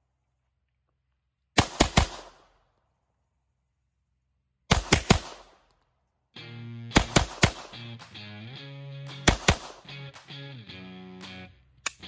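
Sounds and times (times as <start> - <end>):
pistol shots: 1.6 - 2.5, 4.7 - 5.7, 7.0 - 8.1, 9.1 - 9.9
background music: 6.4 - 12.0.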